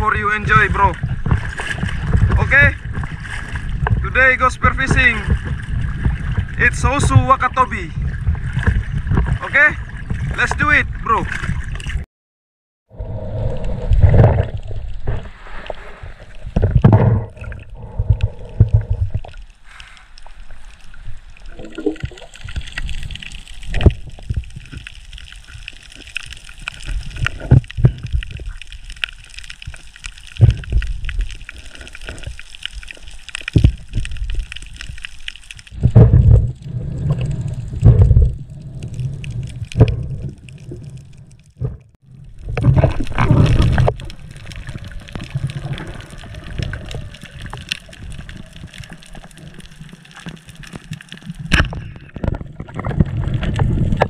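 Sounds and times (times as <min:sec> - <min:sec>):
water gurgling and sloshing: 0:00.0 - 0:12.0, 0:12.9 - 0:54.0
low thumps: 0:35.7 - 0:40.9.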